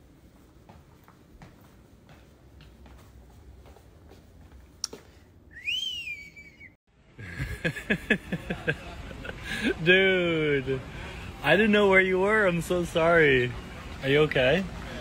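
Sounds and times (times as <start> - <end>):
rising and falling whistle: 5.5 - 6.8.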